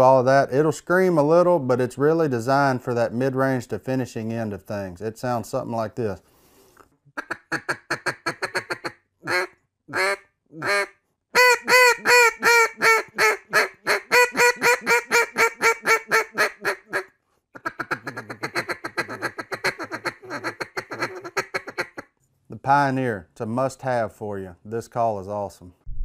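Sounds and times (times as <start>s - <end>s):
duck call quacking: 7.2s - 22.0s.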